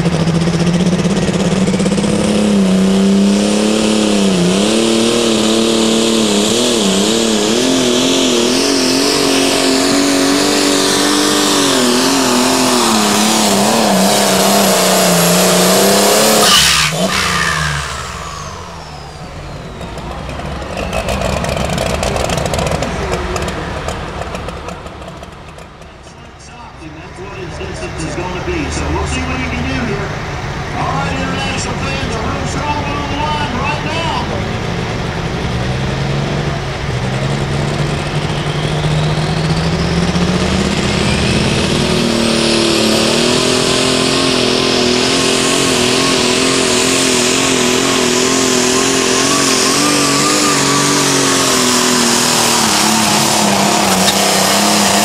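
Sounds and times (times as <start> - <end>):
diesel tractor engine at full load: 0.0 - 55.0
turbo whine spooling down: 4.0 - 25.3, 37.3 - 55.0.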